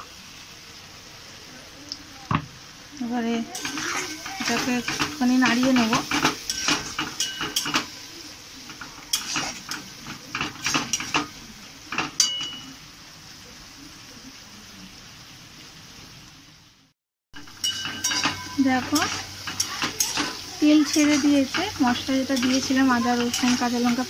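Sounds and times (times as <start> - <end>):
oil sizzling: 0.0 - 24.0
metal spatula scraping a wok: 3.5 - 11.3, 17.5 - 24.0.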